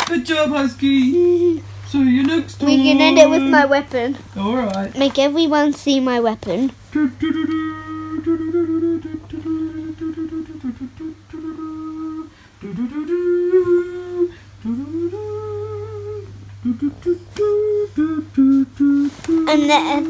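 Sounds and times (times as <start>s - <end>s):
faint low hum: 0.0s - 20.0s
child humming: 2.6s - 4.2s, 19.3s - 20.0s.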